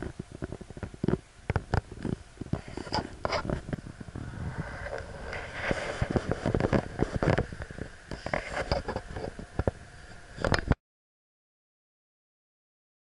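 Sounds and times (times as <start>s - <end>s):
low rumble: 3.0s - 10.7s.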